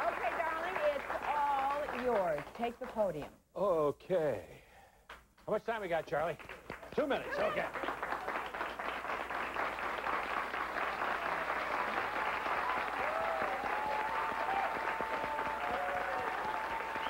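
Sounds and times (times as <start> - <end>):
audience applauding: 0.0 - 3.0, 6.2 - 17.0.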